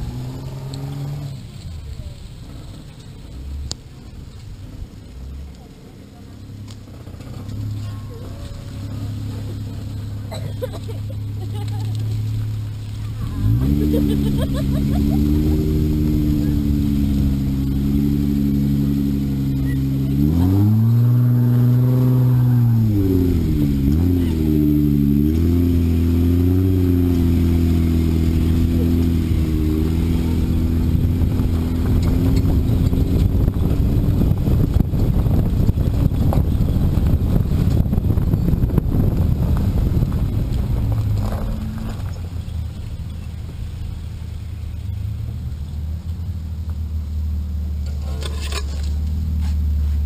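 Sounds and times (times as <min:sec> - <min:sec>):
engine revving: 0:00.0 - 0:03.8, 0:06.0 - 0:46.4
tyres crackling on gravel: 0:00.0 - 0:50.0
wind on camera: 0:11.6 - 0:45.8.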